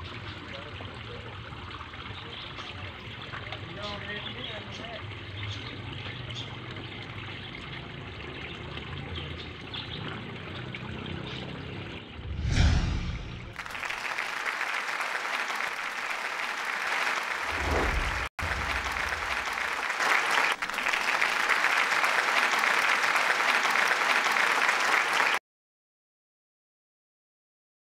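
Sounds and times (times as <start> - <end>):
crowd applause: 13.5 - 25.4.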